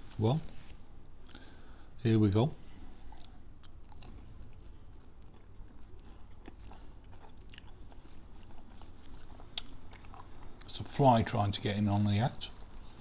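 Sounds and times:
person chewing crunchy toast: 3.0s - 10.7s.

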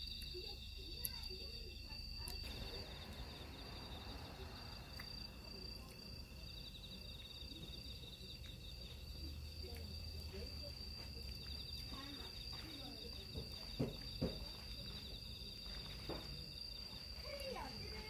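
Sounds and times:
night insects trilling: 0.0s - 18.0s
low rumble: 2.4s - 7.6s.

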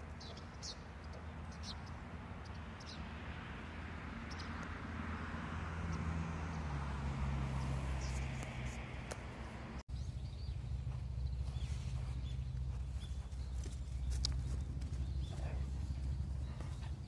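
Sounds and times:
bird chirps: 9.9s - 17.0s.

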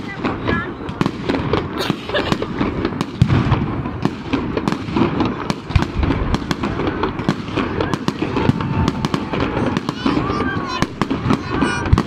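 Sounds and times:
firework bangs and crackles: 0.0s - 12.0s
heavy firework booms: 0.0s - 12.0s.

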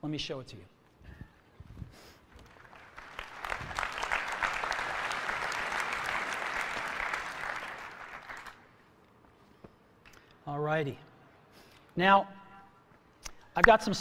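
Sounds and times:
audience applauding: 2.4s - 8.7s.

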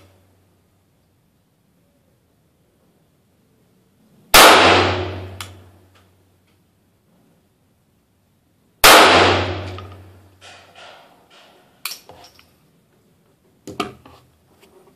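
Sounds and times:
pistol shot: 4.4s - 5.5s, 8.8s - 10.1s.

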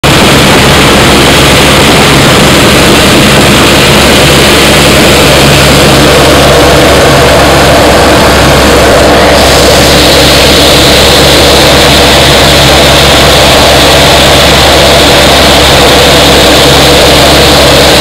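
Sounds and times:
aircraft engine droning: 0.0s - 18.0s.

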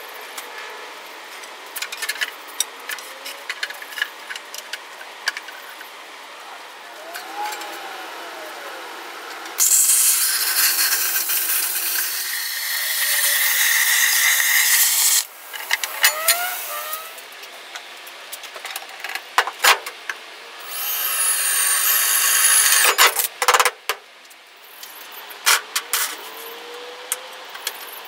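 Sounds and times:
drill whining into metal: 6.9s - 17.2s, 20.6s - 23.0s
plasma cutter hissing: 9.5s - 17.2s, 20.7s - 23.0s.

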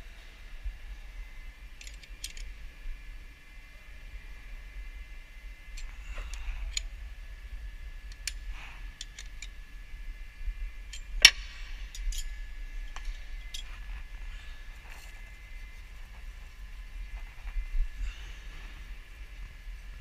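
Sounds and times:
faint high-pitched hum: 0.0s - 20.0s
spanner clicking on metal plug: 10.9s - 12.3s.

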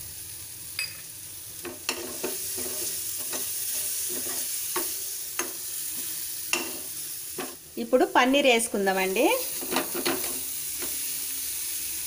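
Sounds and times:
onions sizzling in oil: 0.0s - 12.0s
metal spoon scraping a pan: 1.6s - 7.6s, 9.4s - 11.1s.

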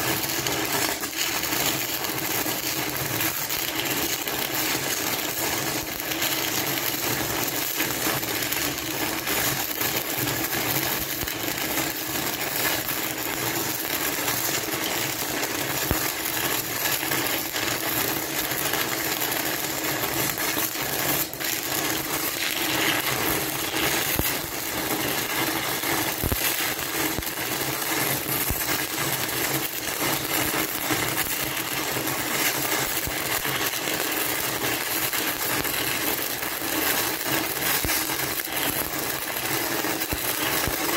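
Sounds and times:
welding arc crackling: 0.0s - 40.9s.

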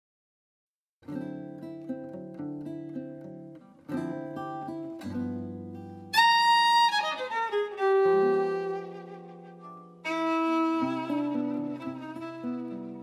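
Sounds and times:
acoustic guitar chords: 1.0s - 13.0s
violin sliding notes: 6.2s - 13.0s.

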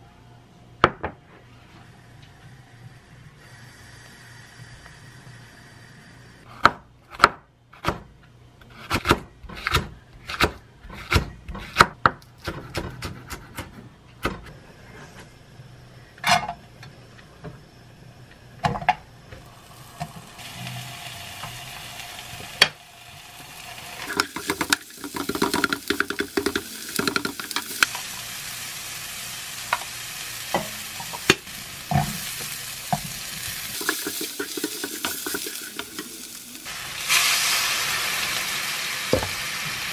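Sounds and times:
onion sizzling in frying pan: 19.4s - 39.9s.

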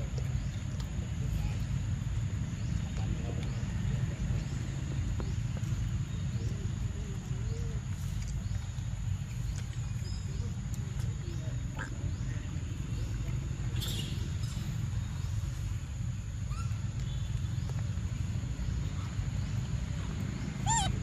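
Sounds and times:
faint animal calls: 20.6s - 21.0s.

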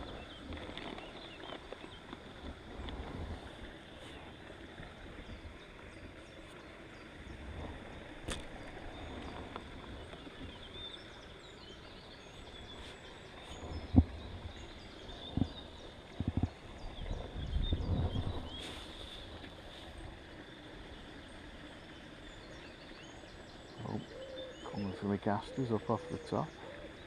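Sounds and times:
wind rumble on microphone: 0.0s - 21.0s
small birds chirping: 0.0s - 27.0s.

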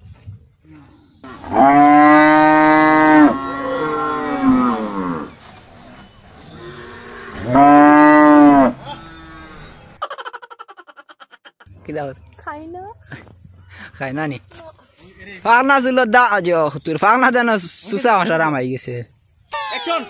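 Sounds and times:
cow mooing: 1.2s - 5.3s, 6.5s - 9.7s.

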